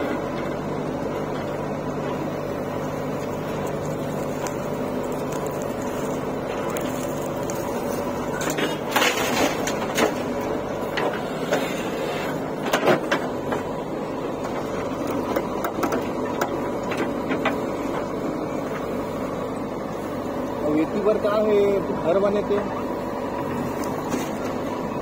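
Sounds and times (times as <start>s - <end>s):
diesel engine running: 0.0s - 25.0s
soil and stones hitting metal: 3.7s - 11.6s.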